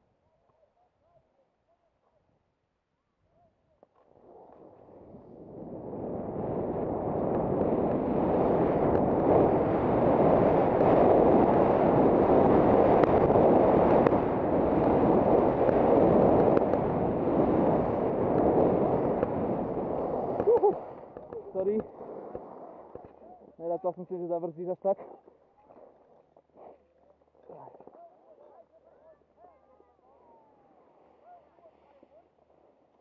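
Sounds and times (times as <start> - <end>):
wind rushing on microphone: 4.7 - 24.3
skis scraping on hard snow: 7.3 - 23.4.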